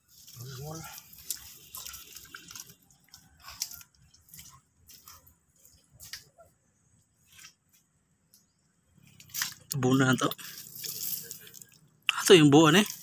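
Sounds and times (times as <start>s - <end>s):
bare feet squelching in mud: 0.1s - 6.3s, 9.2s - 11.9s.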